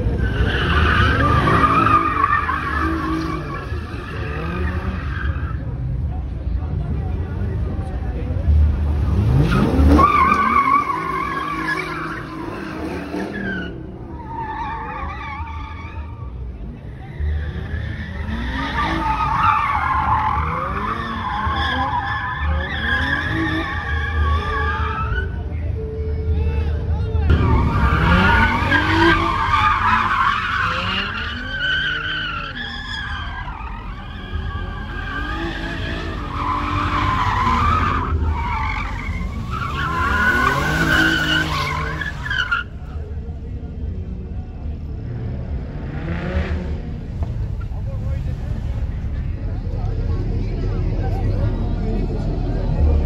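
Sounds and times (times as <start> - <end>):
tires squealing: 0.0 - 6.2, 7.6 - 25.8, 26.5 - 43.5, 45.0 - 53.0
car engine revving: 6.8 - 14.2, 27.3 - 43.5, 44.7 - 53.0
low engine rumble: 46.5 - 53.0.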